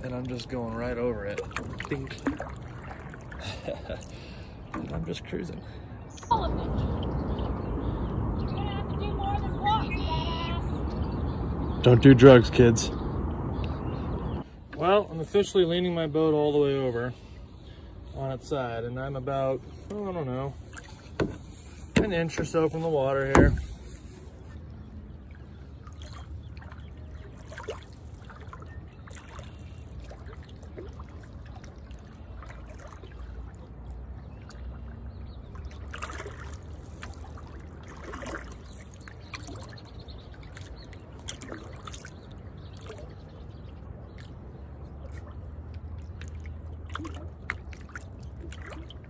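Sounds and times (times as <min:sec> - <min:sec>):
small splashes: 0:00.0 - 0:05.4, 0:19.7 - 0:49.0
water lapping against canoe: 0:00.0 - 0:11.2, 0:19.3 - 0:49.0
low steady rumble: 0:06.3 - 0:14.6.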